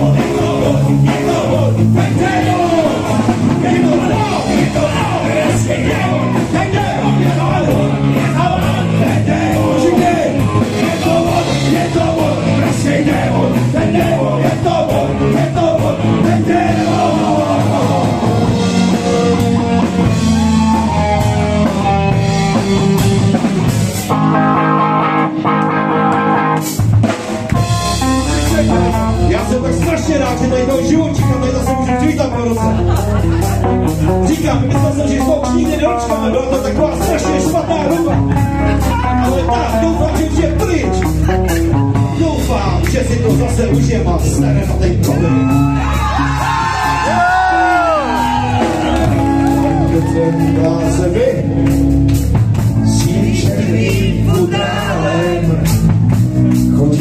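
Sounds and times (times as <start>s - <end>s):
man singing: 0.0s - 19.5s, 28.2s - 33.0s, 34.0s - 48.7s, 49.5s - 51.6s, 52.8s - 56.0s, 56.6s - 57.0s
drum kit: 0.0s - 57.0s
guitar: 0.0s - 57.0s
rock band playing: 0.0s - 57.0s.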